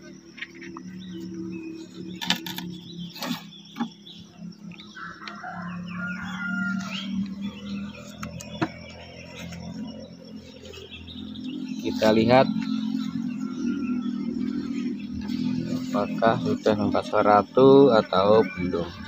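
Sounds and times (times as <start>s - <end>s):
birds chirping: 0.0s - 19.0s
steady low hum: 0.0s - 19.0s
wooden knocks on beehive box: 8.2s - 8.9s.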